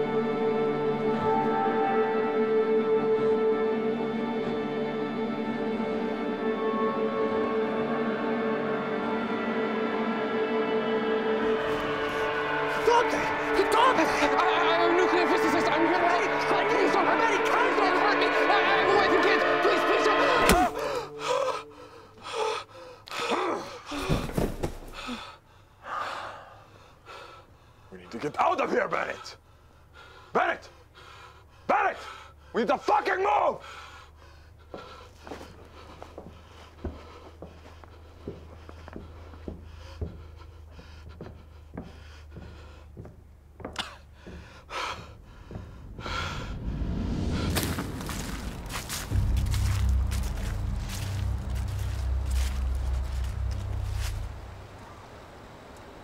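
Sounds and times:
man panting and gasping: 20.7 - 27.8, 33.6 - 46.8
low steady hum: 38.0 - 56.0
rushing noise: 45.6 - 56.0.

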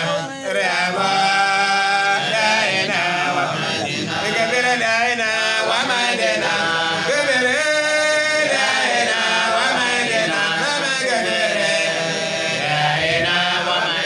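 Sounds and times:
man chanting through loudspeakers: 0.0 - 2.2.

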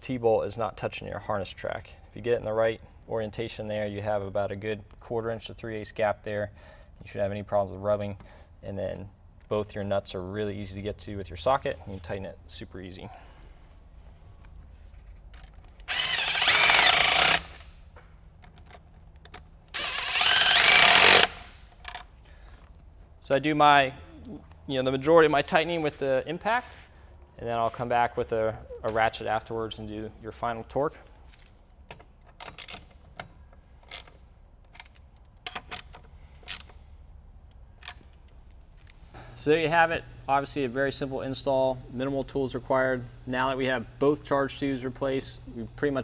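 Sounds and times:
hand ratchet clicking: 15.4 - 17.7, 18.6 - 22.1
impact tool spinning: 15.7 - 17.8, 19.7 - 21.8.

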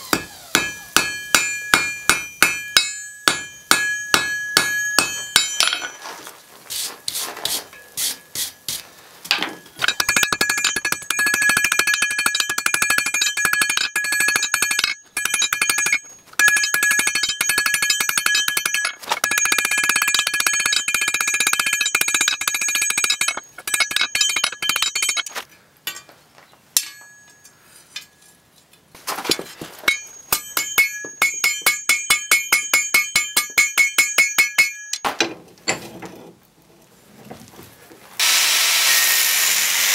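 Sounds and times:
hammer striking steel on anvil: 0.0 - 6.0, 9.3 - 25.3, 25.9 - 26.2, 26.8 - 28.2, 29.8 - 35.3
anvil ringing: 0.1 - 6.0, 9.5 - 26.1, 26.8 - 28.2, 29.8 - 35.1.

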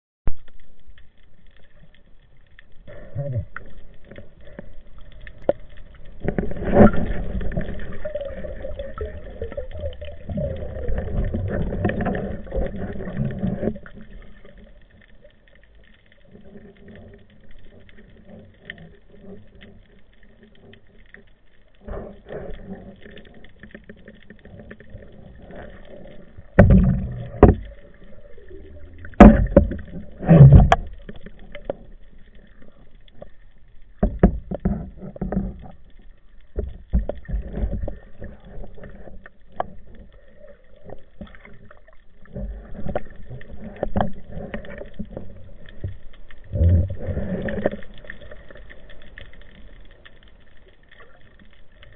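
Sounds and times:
water sloshing and gurgling: 0.3 - 51.9
low thuds and knocks: 26.6 - 27.7, 29.1 - 30.9.

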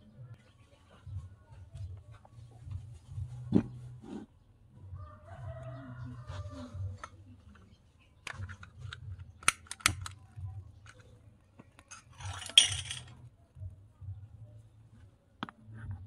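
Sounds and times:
sharp clicks and taps: 8.2 - 11.9.

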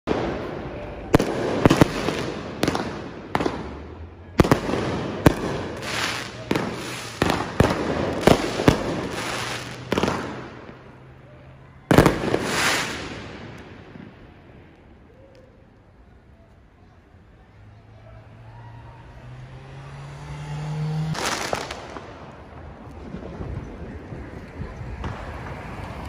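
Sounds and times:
fireworks bursting with echo: 0.0 - 15.4, 21.0 - 26.0.

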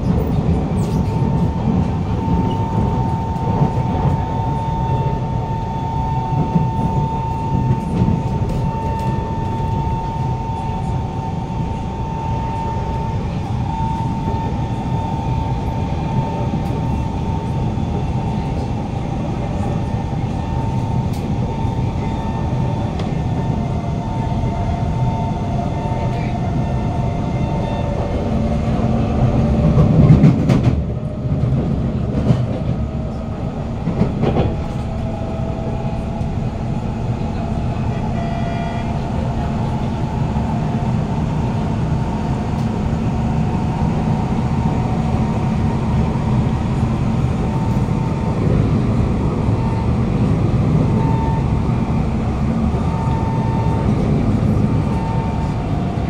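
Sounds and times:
train wheels rumbling on rail: 0.0 - 56.0
faint high whining tones: 0.8 - 29.7.

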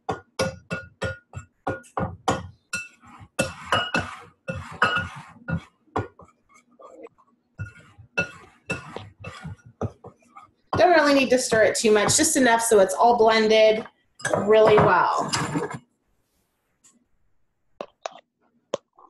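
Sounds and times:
utensil scraping mixing bowl: 1.0 - 15.8.

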